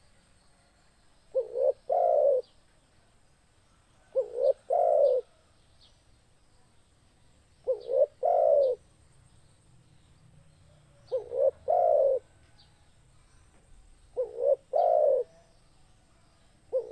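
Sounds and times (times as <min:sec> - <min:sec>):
dove cooing: 0:01.3 - 0:02.5, 0:04.0 - 0:05.4, 0:07.6 - 0:08.8, 0:11.0 - 0:12.4, 0:14.1 - 0:15.5, 0:16.7 - 0:16.9.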